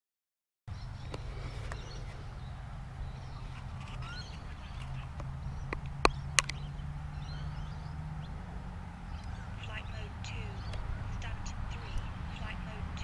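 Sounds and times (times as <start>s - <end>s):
faint bird chirps: 0.7s - 8.4s
low steady rumble: 0.7s - 13.0s
sharp clicks: 4.7s - 6.6s.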